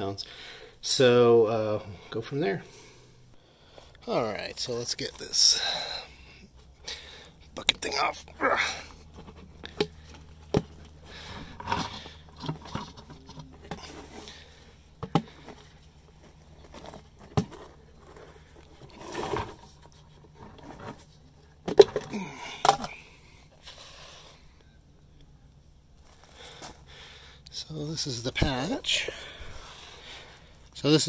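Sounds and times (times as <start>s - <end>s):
plastic scraping: 9.1s - 23.0s
plastic lid clattering: 21.6s - 23.0s.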